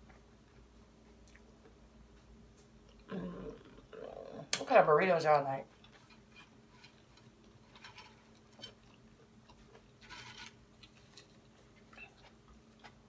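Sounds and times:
tortilla chips rustling: 0:05.8 - 0:13.0
chewing: 0:06.8 - 0:13.0.

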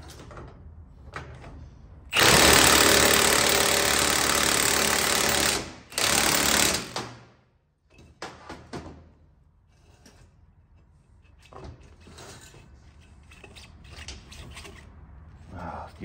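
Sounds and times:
impact wrench hammering: 0:02.1 - 0:07.2.

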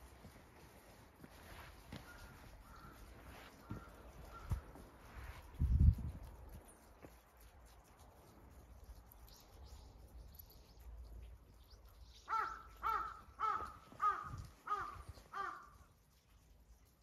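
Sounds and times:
crow cawing: 0:02.0 - 0:03.0, 0:03.6 - 0:04.6, 0:12.3 - 0:15.8.

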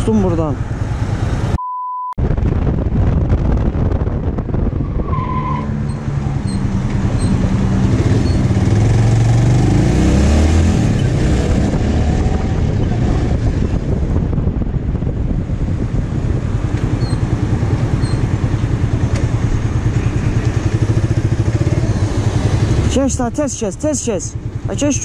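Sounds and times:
wind noise on microphone: 0:02.2 - 0:22.8
motorcycle engine running: 0:05.9 - 0:10.0, 0:10.8 - 0:25.0.

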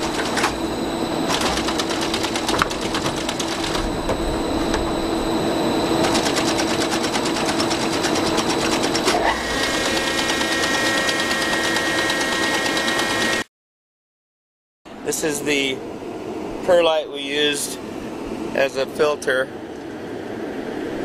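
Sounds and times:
machine hum: 0:00.0 - 0:13.5
machine rapid ticking: 0:01.3 - 0:03.9, 0:06.0 - 0:13.4
higher steady tone: 0:03.7 - 0:06.2.

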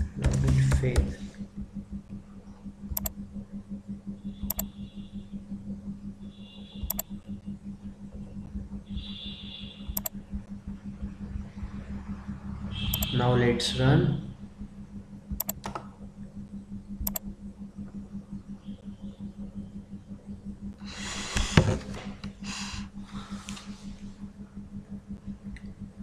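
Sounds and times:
low electrical hum: 0:00.0 - 0:26.0
computer mouse clicks: 0:02.9 - 0:03.2, 0:04.5 - 0:04.7, 0:06.8 - 0:07.1, 0:09.9 - 0:10.2, 0:12.9 - 0:13.1, 0:15.3 - 0:15.9, 0:17.0 - 0:17.2.

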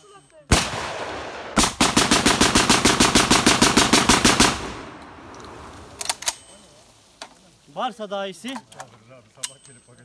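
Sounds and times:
rapid gunshots: 0:00.5 - 0:04.8.

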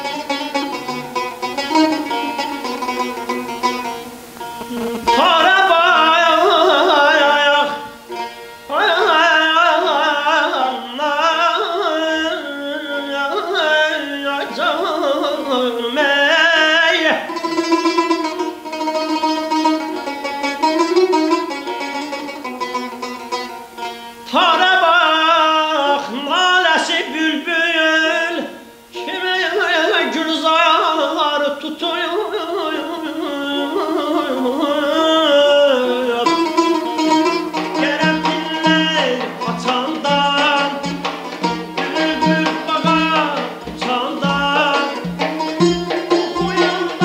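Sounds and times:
man singing ornamented vocals: 0:00.0 - 0:22.4, 0:23.9 - 0:47.0
plucked lute melody: 0:00.0 - 0:47.0
frame drum beat: 0:37.5 - 0:47.0.

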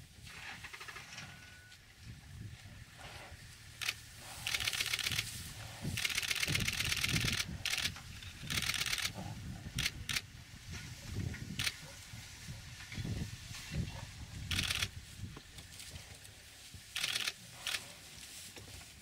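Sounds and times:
camera shutter clicks: 0:03.8 - 0:05.3, 0:06.0 - 0:09.2, 0:14.5 - 0:14.9, 0:17.0 - 0:17.8.

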